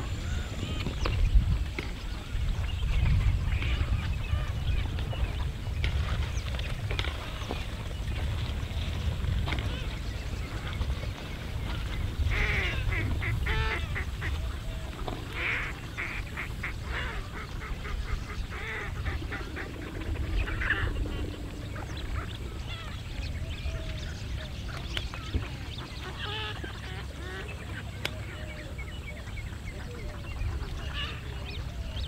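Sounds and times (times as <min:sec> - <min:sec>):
waterfowl harsh pulsed calls: 0:12.3 - 0:23.0
low rumble: 0:17.9 - 0:24.8.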